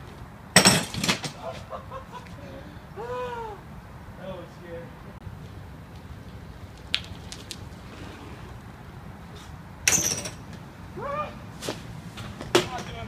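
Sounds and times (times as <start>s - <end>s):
bike hitting brick ledge: 0.6s - 1.5s
bike clicks: 5.4s - 7.8s.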